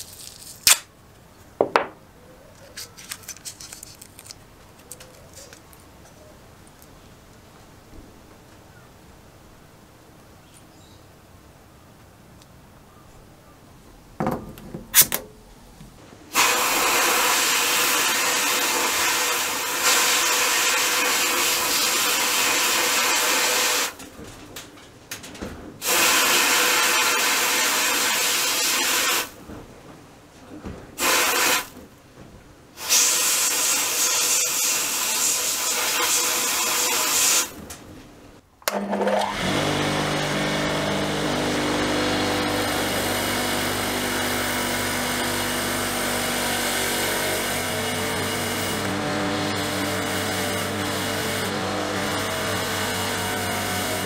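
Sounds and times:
sandblasting gun hissing: 16.3s - 24.0s, 25.8s - 29.4s, 31.0s - 31.7s, 32.8s - 37.6s, 41.9s - 54.0s
bench grinder motor humming: 38.7s - 54.0s.

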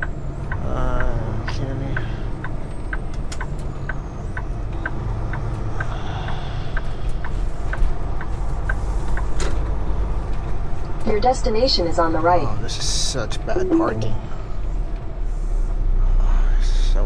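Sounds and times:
turn signal ticking: 0.0s - 12.5s
diesel engine rumbling: 0.0s - 17.0s.

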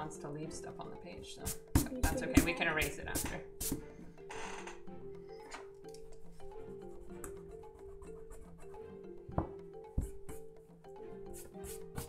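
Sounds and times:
light music with mallet tones: 0.0s - 12.0s.

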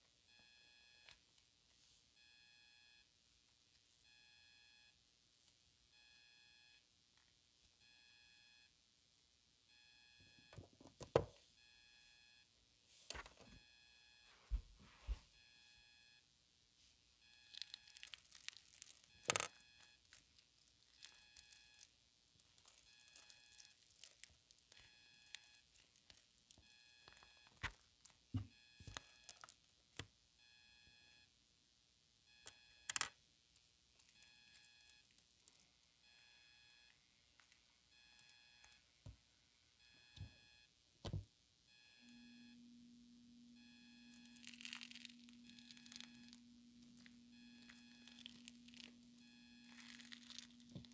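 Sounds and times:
faint electronic beeping: 0.3s - 1.2s, 2.2s - 3.1s, 4.0s - 5.0s, 5.9s - 6.8s, 7.8s - 8.7s, 9.7s - 12.5s, 13.1s - 16.3s, 17.2s - 18.1s, 18.9s - 20.2s, 20.9s - 21.9s, 22.7s - 23.8s, 24.7s - 25.8s, 26.6s - 27.7s, 28.3s - 29.6s, 30.4s - 31.3s, 32.3s - 33.2s, 34.1s - 50.9s
clay pieces clicking and knocking: 17.7s - 20.2s, 32.5s - 33.2s
steady low hum: 42.0s - 49.7s.

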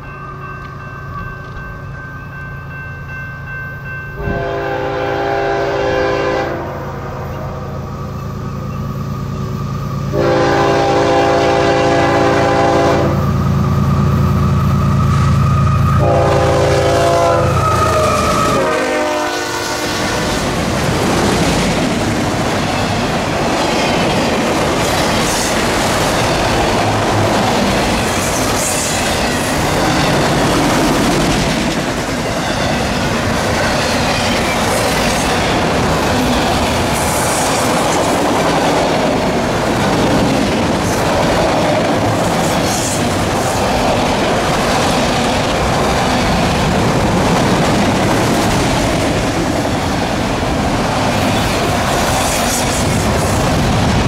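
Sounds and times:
train wheels on rail: 0.0s - 54.0s
train air horn blasts: 4.2s - 6.9s, 10.1s - 13.3s, 15.8s - 20.3s.

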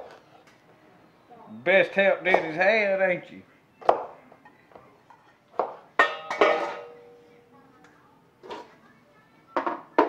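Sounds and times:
knife clinking on metal cookware: 6.0s - 7.1s.

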